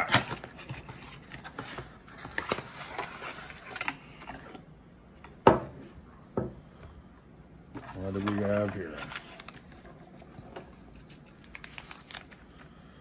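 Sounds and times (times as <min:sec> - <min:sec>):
cardboard and paper rustling: 0:00.0 - 0:04.6, 0:07.7 - 0:12.8.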